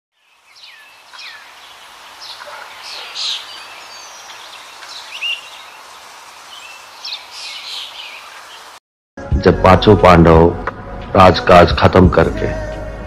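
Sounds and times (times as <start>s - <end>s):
birds chirping: 0.1s - 8.8s.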